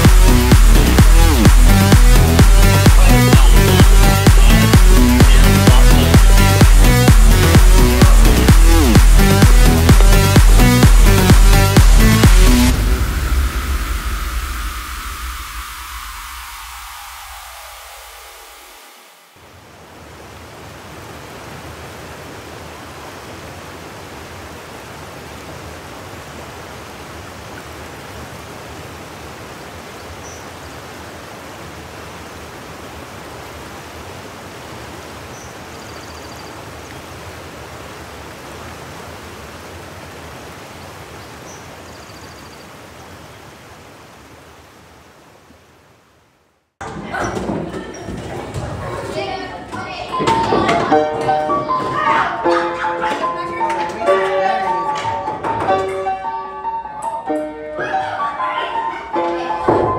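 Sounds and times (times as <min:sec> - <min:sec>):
steady rushing noise: 0:00.0 - 0:29.8.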